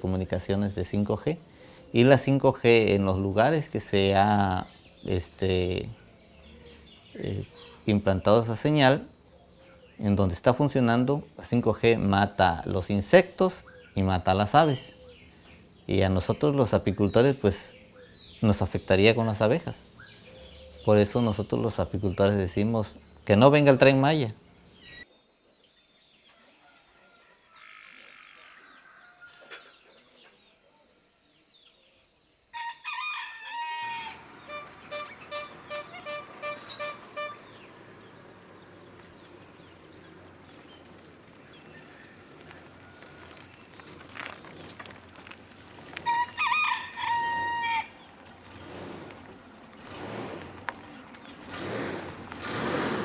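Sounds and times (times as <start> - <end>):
faint bird chirps: 24.4 - 32.5
rooster crowing: 26.4 - 29.7, 32.5 - 35.1, 41.6 - 43.6, 46.0 - 48.1.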